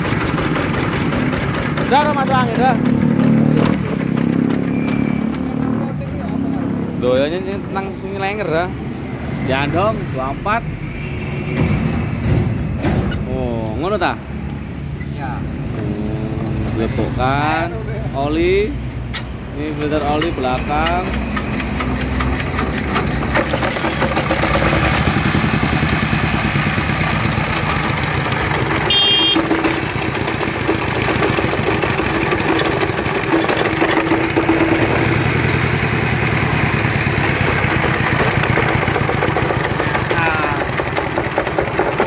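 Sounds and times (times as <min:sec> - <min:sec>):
diesel engine chugging: 0:00.0 - 0:05.3, 0:19.9 - 0:42.0.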